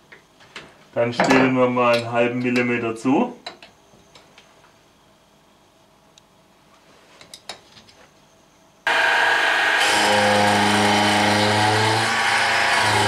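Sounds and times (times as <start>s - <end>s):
mill motor humming: 8.9s - 13.0s
rasping metal cutting: 8.9s - 13.0s.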